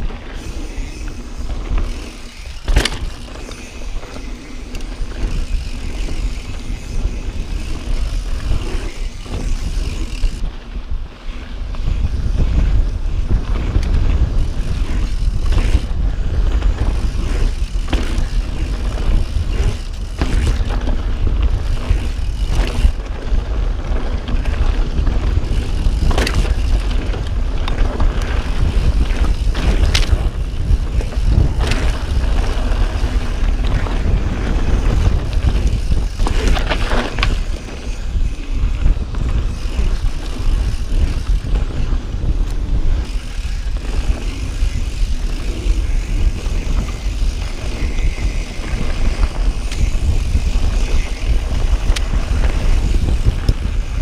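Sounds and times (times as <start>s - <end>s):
bike knocks and rattles: 0.0s - 10.6s, 11.7s - 54.0s
tyre noise over dirt trail: 0.0s - 54.0s
wind rumble on microphone: 0.0s - 54.0s.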